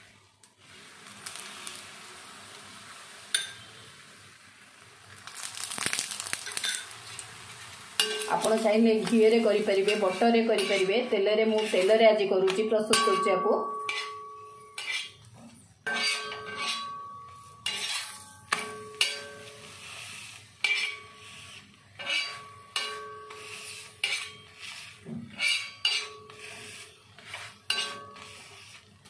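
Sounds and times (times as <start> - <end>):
steel spatula scraping griddle: 5.8 - 29.0.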